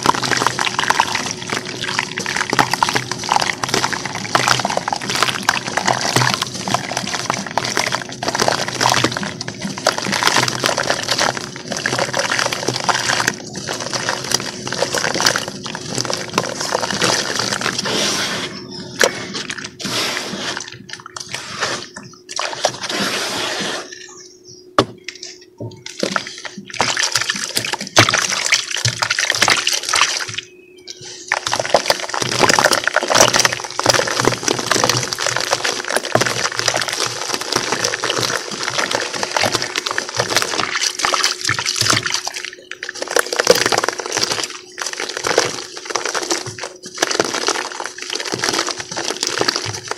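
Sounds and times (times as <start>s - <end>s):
gritty crumble of cement chunks: 0.0s - 18.0s, 31.3s - 49.9s
water sloshing and splashing: 0.0s - 23.2s, 25.8s - 49.9s.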